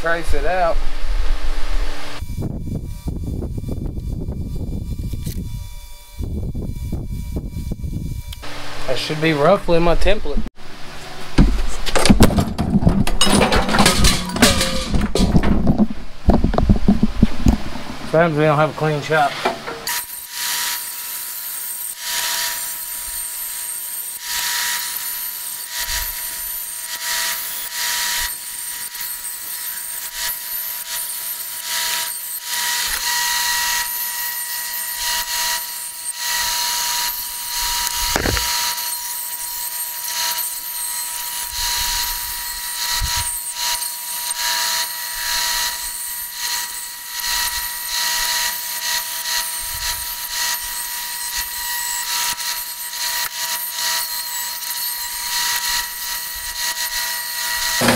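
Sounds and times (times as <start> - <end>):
band saw motor whine: 0.0 - 11.4, 17.6 - 57.9
saw blade cutting sheet: 13.3 - 15.4, 18.8 - 57.9.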